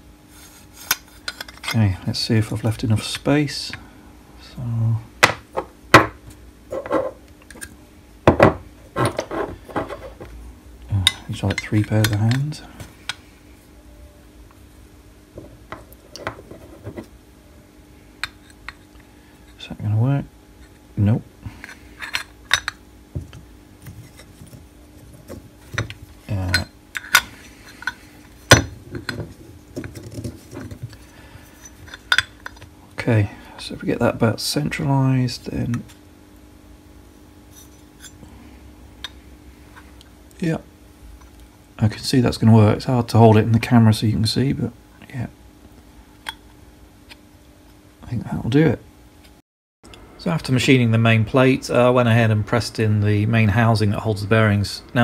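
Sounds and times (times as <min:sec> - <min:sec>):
metal parts knocking on wooden bench: 0:08.3 - 0:10.3, 0:24.4 - 0:30.9.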